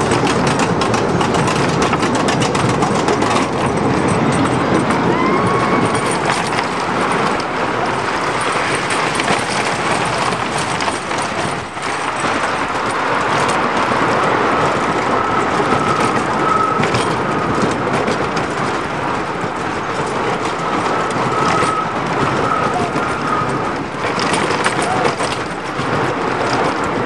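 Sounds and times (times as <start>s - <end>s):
roller coaster wheels rumbling: 0.0s - 27.0s
thin squeal: 15.2s - 17.0s.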